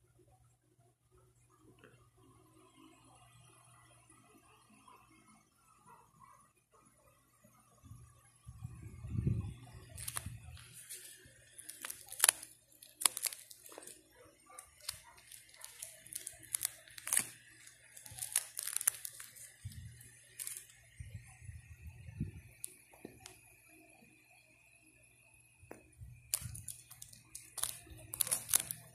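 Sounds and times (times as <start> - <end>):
plastic pages crinkling: 9.8 - 20.8, 26.3 - 28.9.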